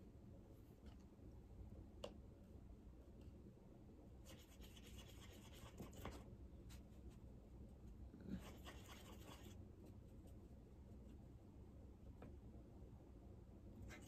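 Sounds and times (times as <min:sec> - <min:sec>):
wet paintbrush scrubbing in paint: 0:04.2 - 0:06.2, 0:08.4 - 0:10.5.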